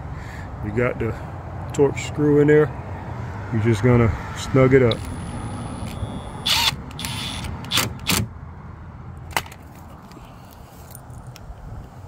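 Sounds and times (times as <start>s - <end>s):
cordless drill motor whine: 4.9s - 7.5s.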